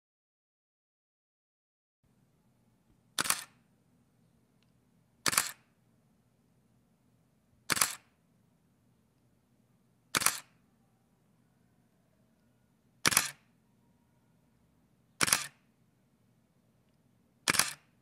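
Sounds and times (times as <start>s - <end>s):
camera shutter and mirror clacks: 3.2s - 3.6s, 5.2s - 5.7s, 7.6s - 8.2s, 10.1s - 10.6s, 13.0s - 13.5s, 15.2s - 15.7s, 17.4s - 18.0s.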